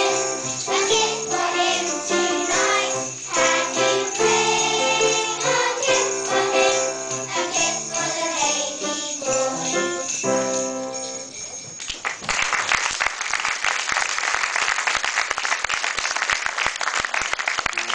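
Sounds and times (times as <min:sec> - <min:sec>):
children's choir singing: 0:00.0 - 0:10.2
jingle bells shaking: 0:00.0 - 0:12.3
audience clapping: 0:11.8 - 0:17.9.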